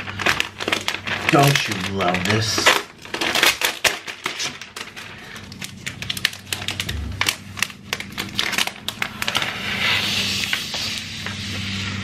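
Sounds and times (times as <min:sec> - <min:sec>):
plastic film crinkling as peeled: 0:00.0 - 0:12.0.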